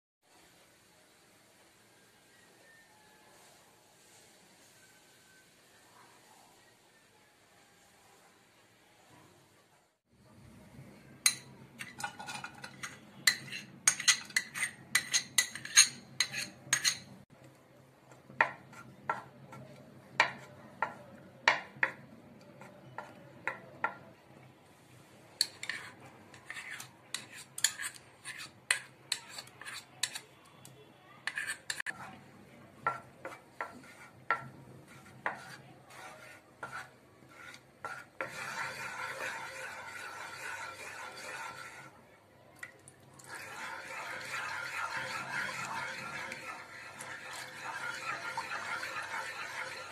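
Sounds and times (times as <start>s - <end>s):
spoons clinking on frying pan: 11.2s - 17.1s
spoon scraping pan while stirring: 11.2s - 17.3s, 18.1s - 24.1s, 25.4s - 42.0s, 43.2s - 49.9s.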